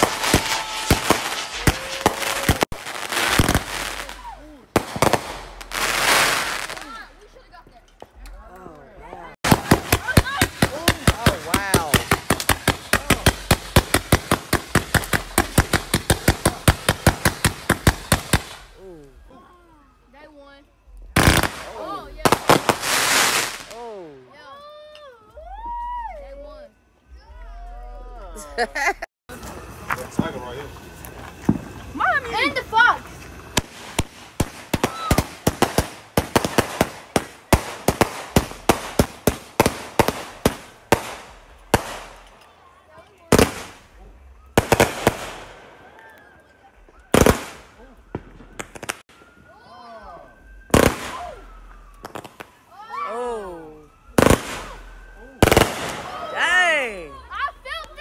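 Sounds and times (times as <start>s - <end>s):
firework volley bangs: 0.0s - 7.1s, 9.4s - 18.8s, 21.2s - 23.8s, 29.8s - 32.9s, 33.5s - 42.3s, 43.3s - 44.0s, 44.6s - 45.9s, 47.1s - 49.3s, 50.6s - 52.6s, 54.1s - 56.4s.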